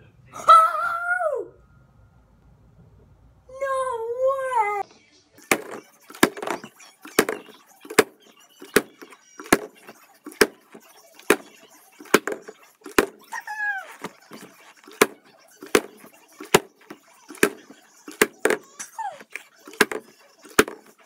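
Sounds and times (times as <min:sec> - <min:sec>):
plastic bottle landing clacks: 0:05.4 - 0:21.0.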